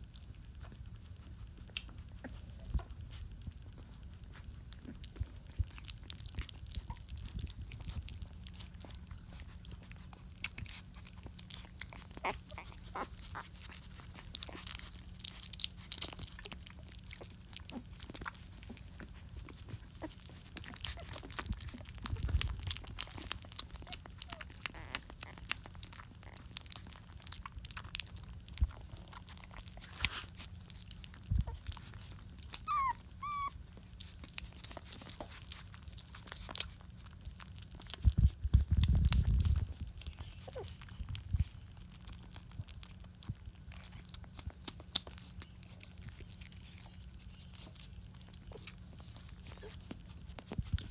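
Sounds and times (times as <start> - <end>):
puppies sucking and smacking: 0.0 - 50.9
puppy squeaking: 8.9 - 27.1, 31.4 - 33.8, 40.0 - 41.2.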